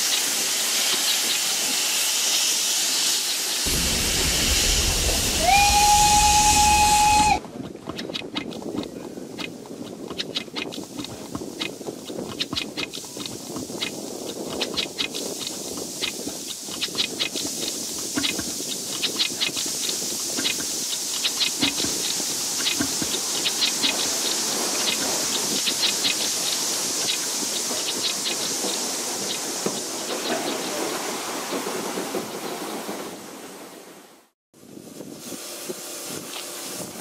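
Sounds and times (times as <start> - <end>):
steam hissing: 0.0 - 7.4, 10.8 - 33.7, 34.7 - 37.0
metallic clicks of train wheels: 0.0 - 30.8
low rumble: 3.7 - 7.4.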